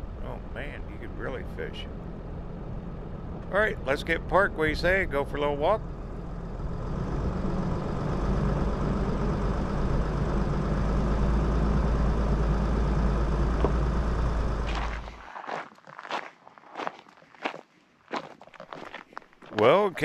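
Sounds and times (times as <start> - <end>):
vehicle engine idling: 0.0 - 15.2.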